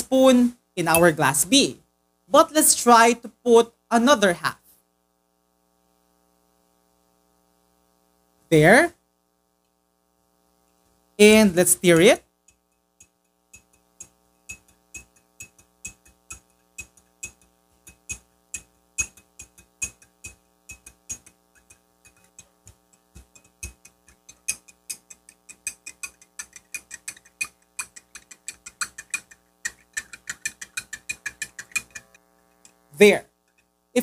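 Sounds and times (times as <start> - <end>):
spoon clinking against glass: 13.6 - 22.4.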